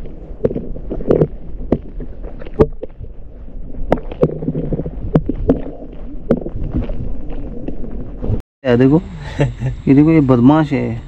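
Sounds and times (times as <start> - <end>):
muffled underwater water movement: 0.0 - 8.4.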